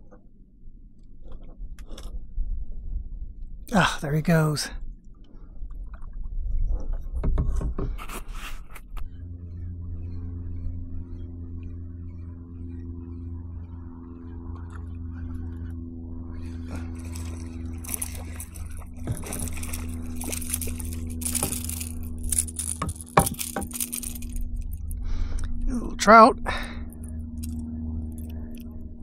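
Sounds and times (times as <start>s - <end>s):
boat motor running: 9.0s - 29.0s.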